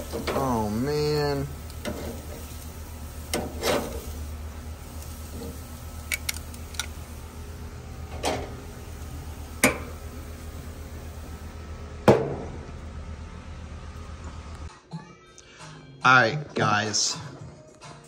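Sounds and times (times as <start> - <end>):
grill lid shutting: 0.0 - 12.8
steady low rumble: 0.0 - 14.7.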